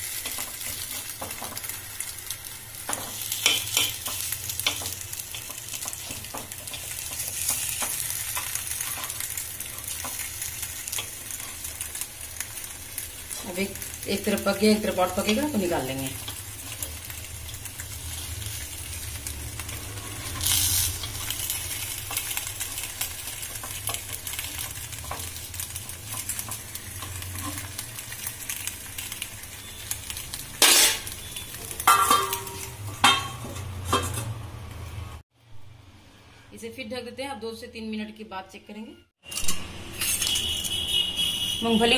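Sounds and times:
food sizzling in a pan: 0.0s - 35.8s
metal lid clanking: 31.8s - 34.3s.

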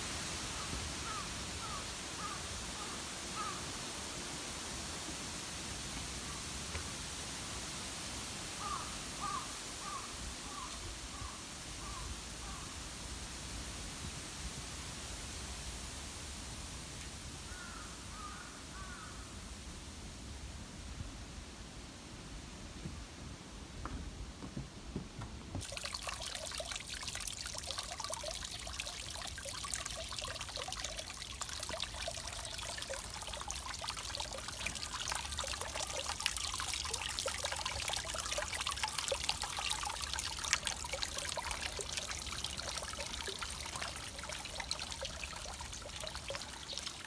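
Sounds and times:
water trickling into stone basin: 25.6s - 47.0s.

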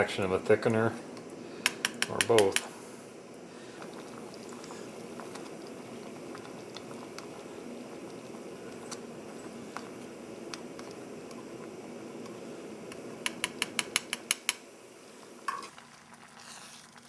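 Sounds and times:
food bubbling in a pot: 0.0s - 17.0s
stirring clicks: 3.3s - 14.6s.

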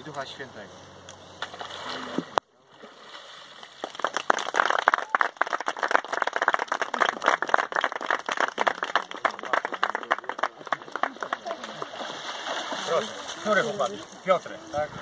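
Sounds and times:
people clapping: 3.8s - 12.1s.

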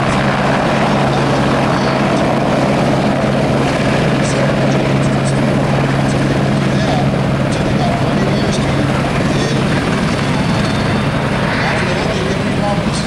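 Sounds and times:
aircraft engine drone: 0.0s - 13.0s.

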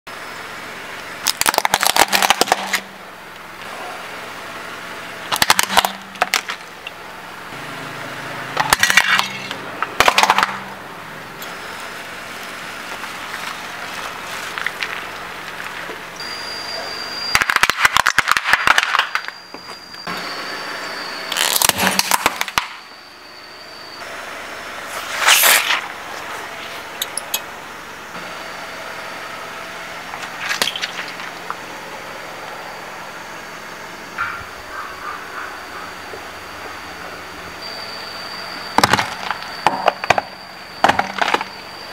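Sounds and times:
car engine running: 0.1s - 17.4s, 25.8s - 41.9s.

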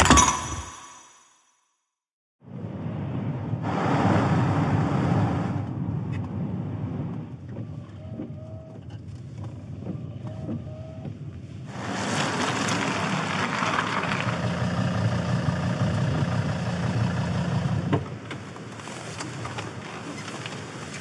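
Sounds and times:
wind and rain on microphone: 2.4s - 21.0s
car cabin noise on wet road: 6.2s - 21.0s
car engine idling: 12.4s - 18.2s.

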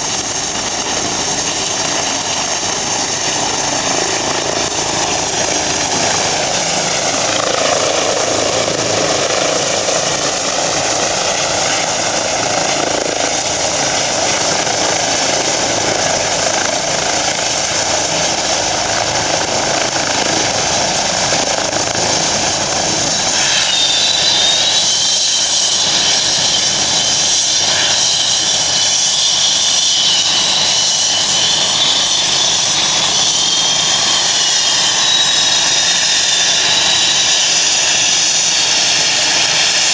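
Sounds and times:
helicopter turbine and rotor noise: 0.0s - 39.9s
wavering turbine whine: 0.0s - 39.9s.

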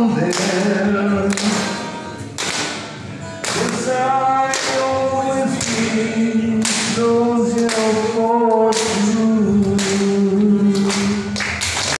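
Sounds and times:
man singing long notes: 0.0s - 2.2s, 3.5s - 11.4s
strummed acoustic guitar: 0.0s - 11.8s.

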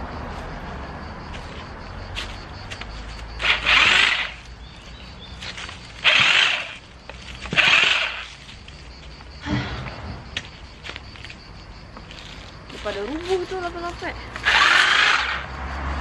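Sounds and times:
electric hedge trimmer running: 3.4s - 4.4s, 6.0s - 6.8s, 7.5s - 8.3s, 14.4s - 15.5s
trimmer blades cutting stems: 3.4s - 4.5s, 6.0s - 6.8s, 7.4s - 8.4s, 14.4s - 15.5s.

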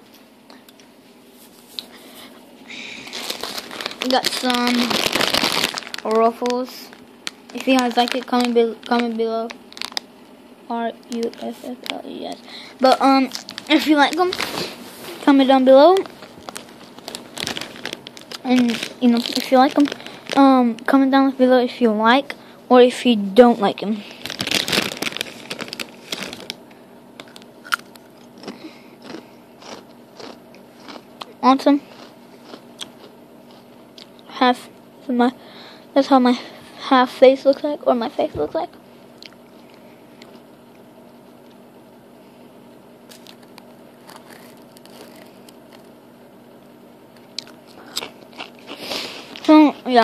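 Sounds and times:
low hum and hiss: 0.0s - 50.0s
chip bag crinkling: 2.8s - 10.2s, 10.8s - 21.0s, 23.8s - 34.2s, 43.1s - 46.0s, 47.2s - 50.0s.

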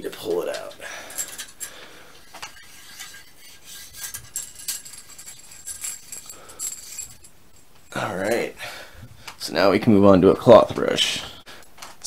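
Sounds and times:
metallic scraping and jingling: 0.5s - 8.7s.

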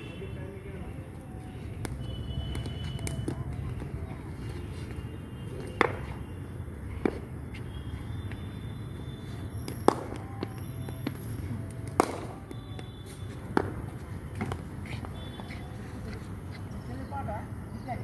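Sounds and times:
cricket ball knocks: 5.7s - 6.2s.

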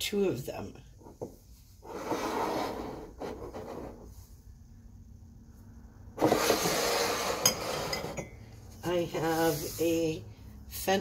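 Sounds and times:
mug scraping on tabletop: 1.8s - 4.2s, 6.2s - 8.3s.

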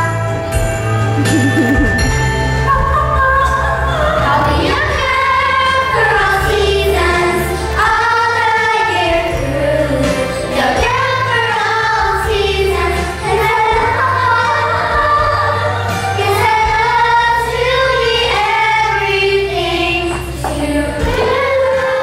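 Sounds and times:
instrumental accompaniment with bass: 0.1s - 8.5s
girl singing a show tune: 1.2s - 2.0s.

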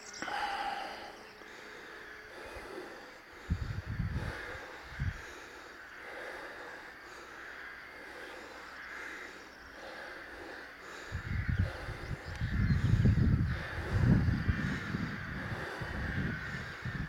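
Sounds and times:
wind buffeting on microphone: 3.3s - 5.4s, 10.9s - 17.0s.

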